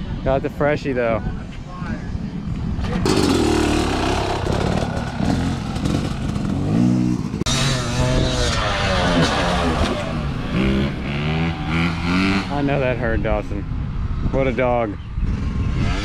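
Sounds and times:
dirt bike engine revving: 3.0s - 13.0s.

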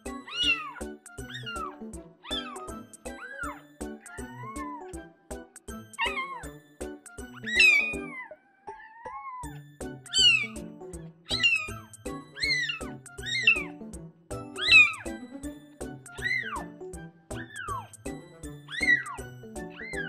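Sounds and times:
background music with beat: 0.0s - 6.0s, 6.6s - 7.4s, 11.8s - 19.8s
kitten mewing: 0.2s - 4.9s, 6.0s - 6.5s, 7.4s - 10.6s, 11.3s - 13.7s, 14.6s - 15.1s, 16.1s - 16.7s, 17.4s - 17.9s, 18.7s - 20.0s.

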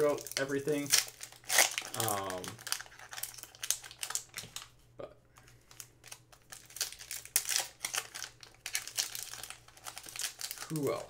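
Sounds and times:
foil wrappers crinkling: 0.0s - 4.7s, 5.4s - 11.0s.

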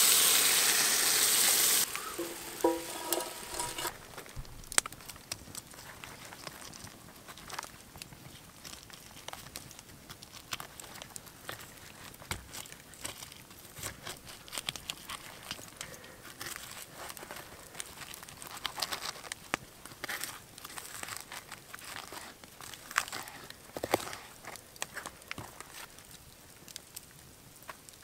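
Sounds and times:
knife slicing crusty roast meat: 2.2s - 4.0s.

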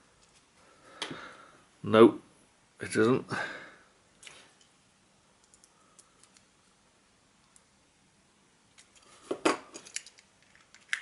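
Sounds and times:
plastic parts clicking and tapping: 8.8s - 11.0s.

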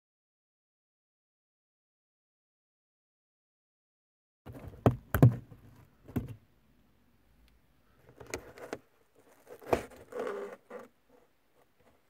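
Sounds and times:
plastic scrape: 8.0s - 12.0s.

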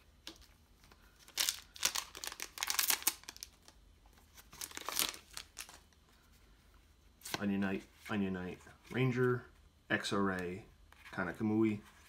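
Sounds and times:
wrapper ripping and crinkling: 1.2s - 3.7s, 4.4s - 5.8s.

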